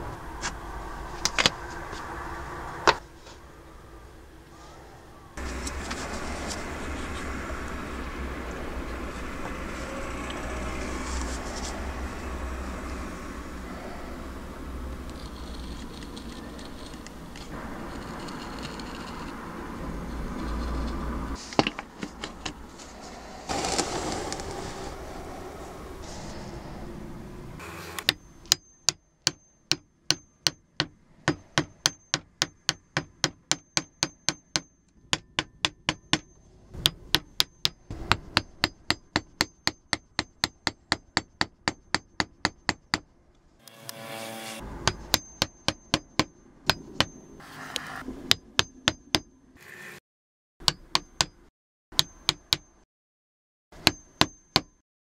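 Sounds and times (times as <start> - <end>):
hammer tapping steel chisel into wood: 28.0 - 43.0, 50.6 - 52.8, 53.8 - 54.7.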